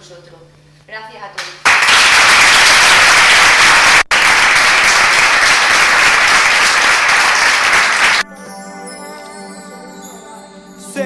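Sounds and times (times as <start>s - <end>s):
audience applauding: 1.6s - 8.2s.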